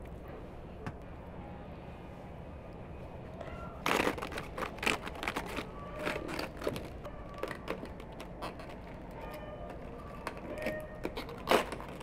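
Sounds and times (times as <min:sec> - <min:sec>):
knife crunching through cabbage: 0:03.8 - 0:09.0, 0:10.6 - 0:12.0.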